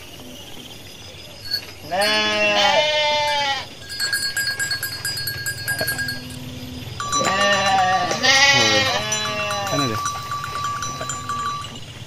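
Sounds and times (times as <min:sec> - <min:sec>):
sheep bleating: 0:01.9 - 0:03.7, 0:07.0 - 0:10.1.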